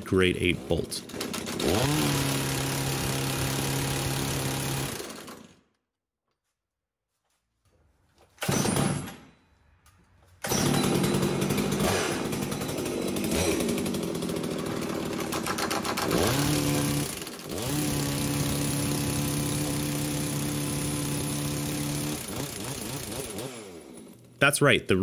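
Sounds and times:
chainsaw engine at high revs: 0.4s - 5.6s, 10.5s - 24.3s
impact wrench hammer rattling: 10.4s - 17.5s.

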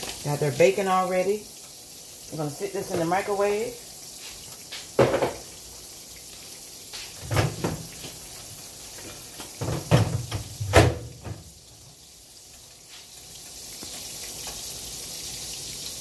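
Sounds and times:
pancake batter sizzling in a pan: 0.0s - 16.0s
kitchen knocks and clunks: 2.8s - 3.3s, 4.9s - 5.5s, 7.0s - 8.2s, 9.0s - 11.6s.

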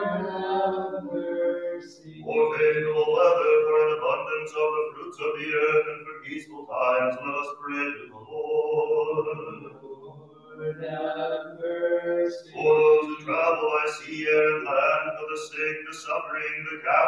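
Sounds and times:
man chanting: 2.0s - 10.0s, 12.4s - 17.0s.

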